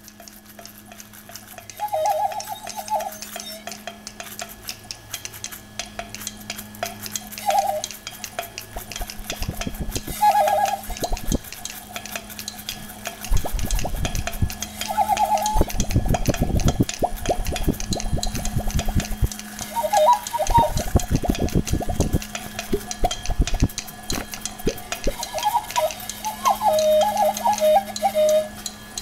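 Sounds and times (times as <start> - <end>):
steady low hum: 0.0 - 29.0
short warbling tone: 19.6 - 22.2.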